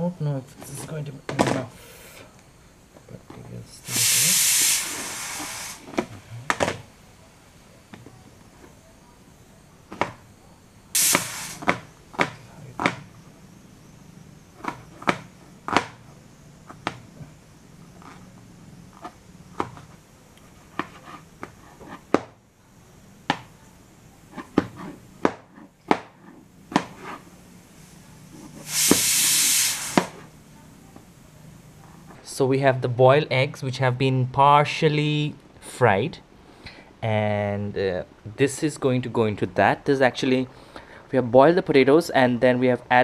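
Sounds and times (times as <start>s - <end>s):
hiss: 3.8s - 6.4s, 10.9s - 11.9s, 27.0s - 30.4s.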